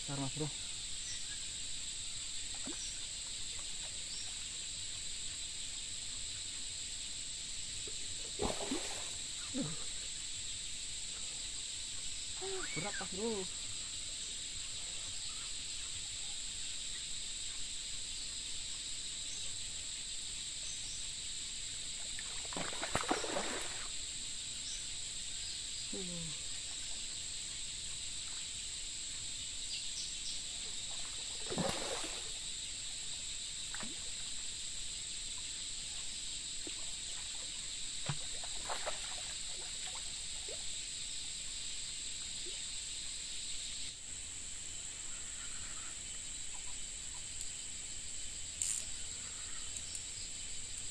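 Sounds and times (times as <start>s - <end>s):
high-pitched insect chorus: 0.0s - 50.9s
fish splashing at surface: 8.4s - 9.2s, 22.5s - 23.9s, 31.4s - 32.4s.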